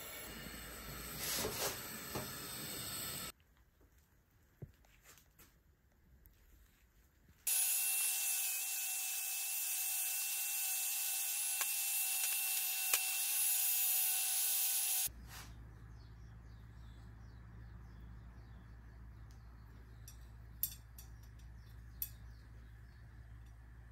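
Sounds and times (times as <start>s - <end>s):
angle grinder grinding metal: 7.5s - 15.1s.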